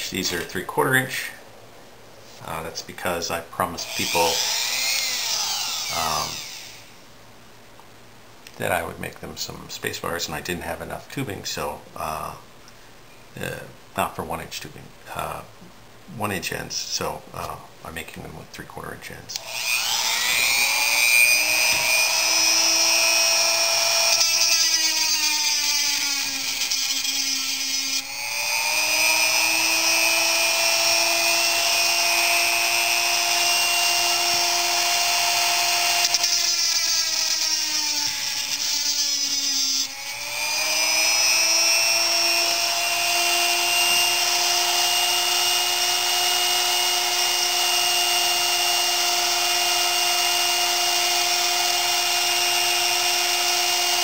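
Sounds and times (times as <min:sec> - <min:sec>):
rotary tool cutting metal: 0:03.8 - 0:06.9, 0:19.4 - 0:54.0.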